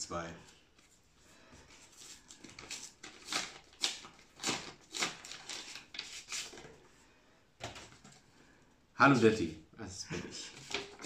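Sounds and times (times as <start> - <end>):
paper rustling and crinkling: 1.7 - 6.9, 10.4 - 11.0.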